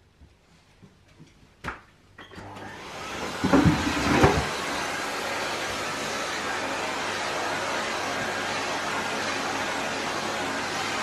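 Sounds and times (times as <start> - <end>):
vacuum cleaner motor running: 2.3 - 11.0.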